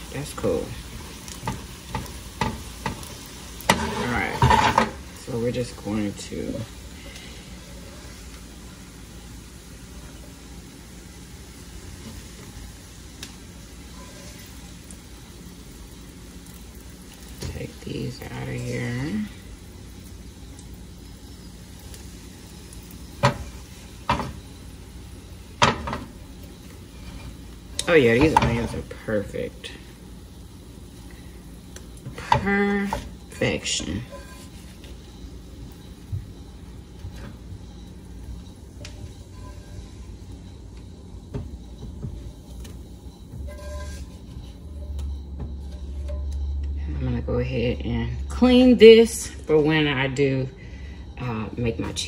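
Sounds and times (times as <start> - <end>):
low steady hum: 0.0 - 52.0
skillet and spatula clanking: 0.4 - 5.3, 23.1 - 24.4, 25.6 - 26.2, 27.0 - 29.0, 32.0 - 35.2, 36.4 - 46.8.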